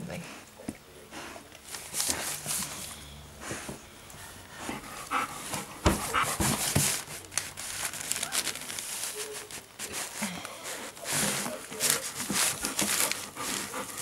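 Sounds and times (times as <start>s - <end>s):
dog panting: 3.4s - 7.1s, 10.7s - 14.0s
handling thumps and rustles: 4.6s - 14.0s.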